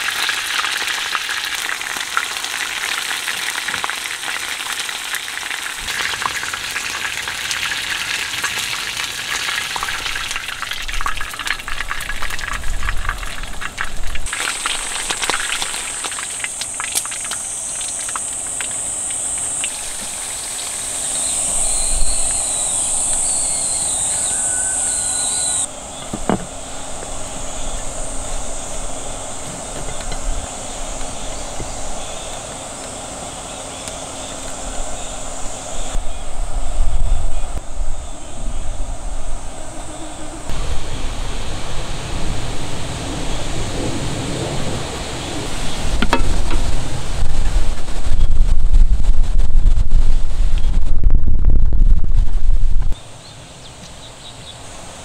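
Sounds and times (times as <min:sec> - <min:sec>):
strong wind buffeting microphone: 0:09.8 - 0:16.1, 0:19.0 - 0:33.4, 0:34.1 - 0:53.0
high chirps: 0:14.3 - 0:25.7
high-pitched insect drone: 0:14.3 - 0:43.5.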